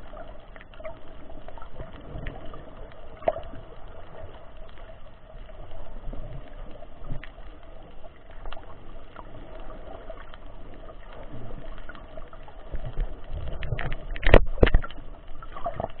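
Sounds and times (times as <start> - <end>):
faint steady hum: 0.0 - 16.0
muffled underwater rush: 0.0 - 16.0
small clicks: 0.0 - 16.0.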